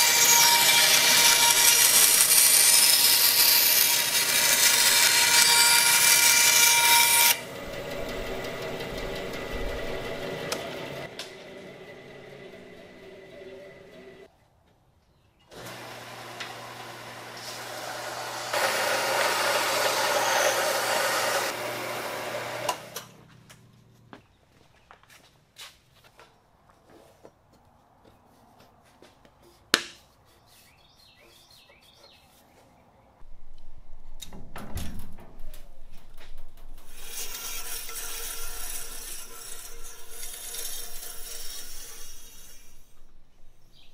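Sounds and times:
wood grinding on sanding belt: 0.0 - 11.1, 15.6 - 23.0, 36.9 - 43.0
belt sander motor hum: 0.0 - 14.2, 15.5 - 23.2
bandsaw running: 0.0 - 14.3, 15.5 - 23.2, 36.9 - 42.9.

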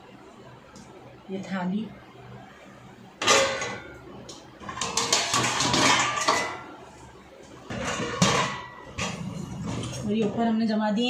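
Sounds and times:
pots and plates clanking: 3.2 - 4.0, 4.6 - 6.8, 7.7 - 10.4.

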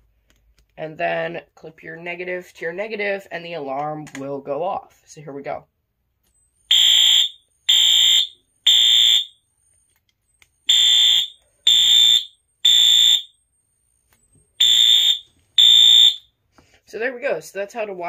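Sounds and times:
fire alarm buzzing horn: 6.7 - 9.4, 10.7 - 13.4, 14.6 - 16.4.

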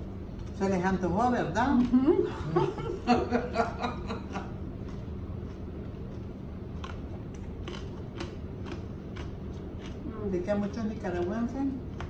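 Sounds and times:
fork clicks and food crunching: 4.7 - 12.0.

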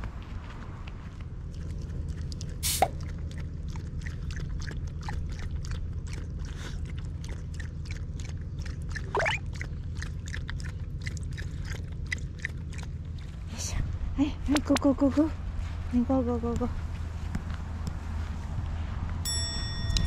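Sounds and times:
dog lapping water: 1.4 - 13.6.

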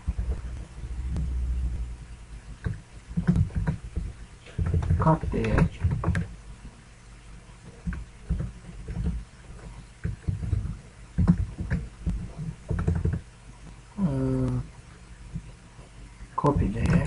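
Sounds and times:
keyboard typing: 2.6 - 6.3, 7.8 - 9.2, 10.0 - 13.2.

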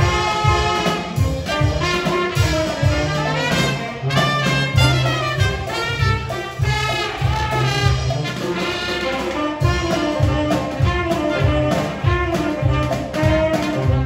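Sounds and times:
brass band playing: 0.0 - 14.0
drum kit beat: 0.0 - 14.0.

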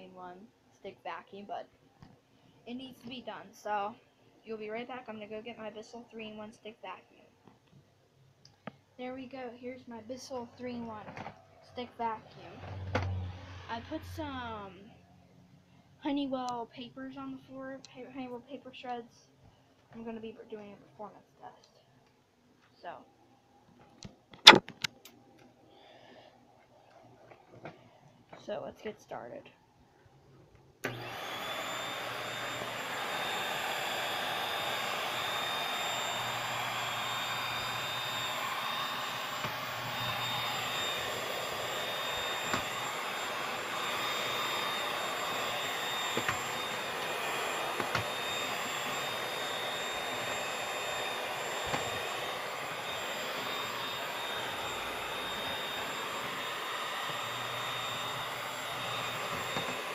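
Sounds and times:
vacuum cleaner running: 12.0 - 14.7, 30.8 - 59.9.

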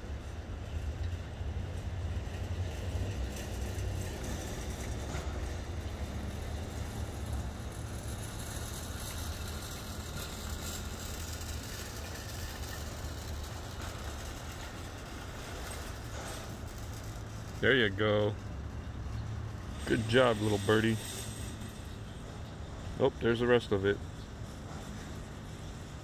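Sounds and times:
motor vehicle rumble: 0.0 - 26.0.

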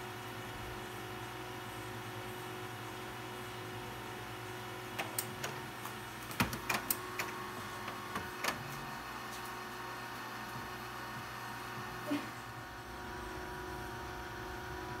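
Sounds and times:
printer humming: 0.0 - 15.0
printer mechanism clicking: 4.9 - 8.7.

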